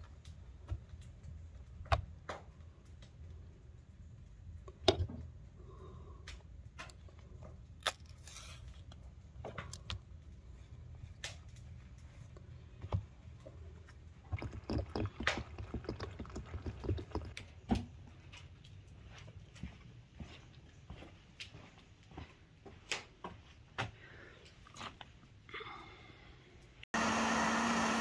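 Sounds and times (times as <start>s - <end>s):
fruit peels rustling on tabletop: 7.8s - 9.0s.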